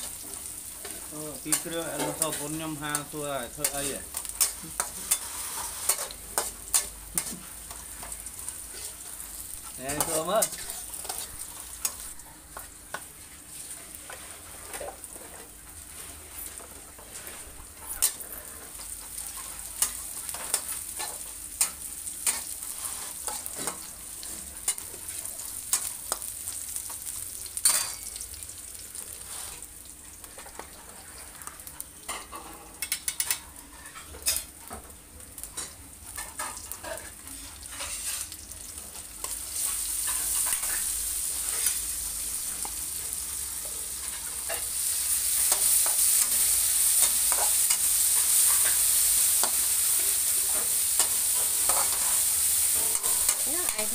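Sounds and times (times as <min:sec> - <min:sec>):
vegetables sizzling in oil: 0:00.0 - 0:53.9
metal spatula scraping a wok: 0:00.8 - 0:07.4, 0:08.0 - 0:12.0, 0:13.6 - 0:25.1, 0:29.2 - 0:29.7, 0:36.2 - 0:38.4, 0:43.6 - 0:53.9.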